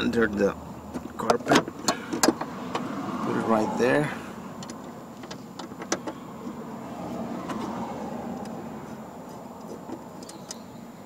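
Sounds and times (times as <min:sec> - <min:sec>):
plastic dash panel clicks: 0:00.9 - 0:02.9, 0:04.6 - 0:06.6, 0:09.6 - 0:10.6.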